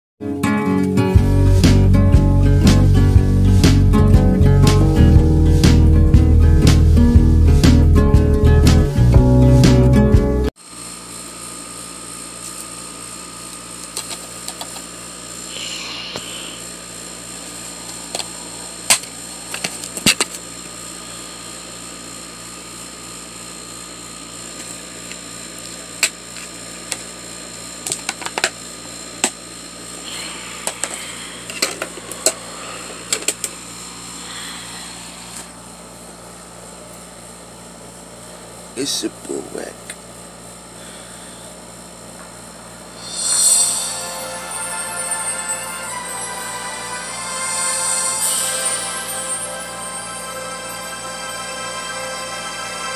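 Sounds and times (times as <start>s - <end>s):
pulsing mechanical hum: 10.8s - 27.9s, 28.6s - 38.8s, 40.0s - 52.9s.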